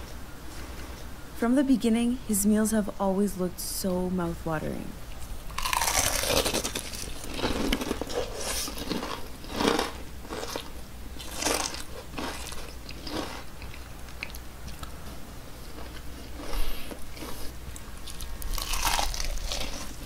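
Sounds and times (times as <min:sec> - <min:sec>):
crunchy chewing: 0:05.2 - 0:20.0.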